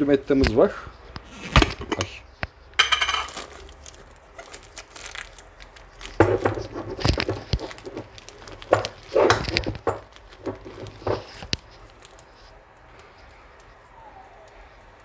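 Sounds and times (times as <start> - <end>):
plastic bag crinkling: 2.8 - 13.8.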